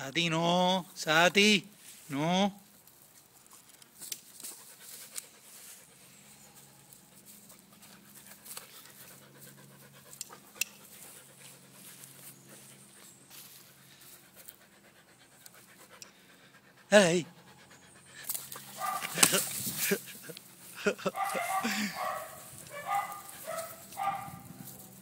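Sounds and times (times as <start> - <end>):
dog panting: 4.4 - 24.4.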